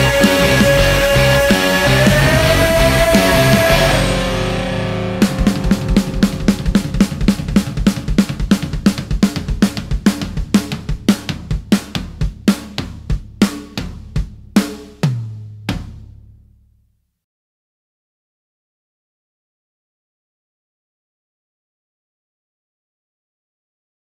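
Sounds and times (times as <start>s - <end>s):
held low note ringing: 0.0s - 9.1s
rock drum kit hits: 0.0s - 16.2s.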